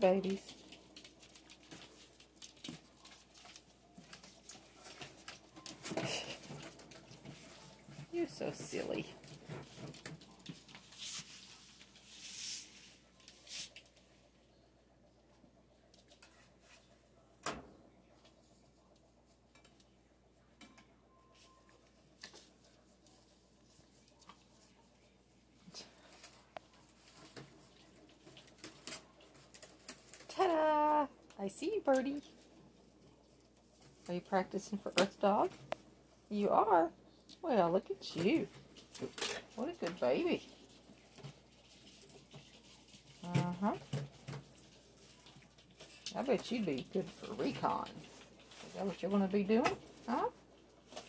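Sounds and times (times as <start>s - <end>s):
puppy paws clicking and tapping: 0.0s - 12.1s.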